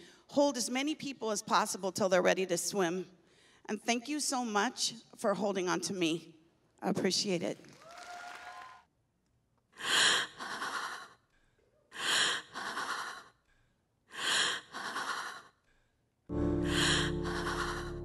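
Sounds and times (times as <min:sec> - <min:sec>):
amplified breaths: 0:09.8 - 0:18.0
music with sustained chords and bass: 0:16.3 - 0:18.0.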